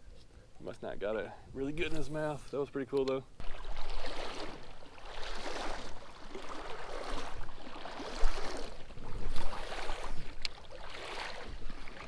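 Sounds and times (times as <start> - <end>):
water sloshing around legs: 3.4 - 12.0.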